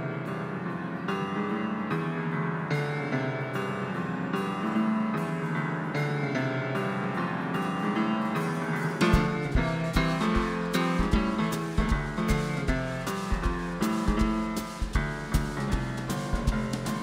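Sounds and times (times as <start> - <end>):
upright piano chords: 0.0 - 17.0
kick drum thumps: 9.1 - 17.0.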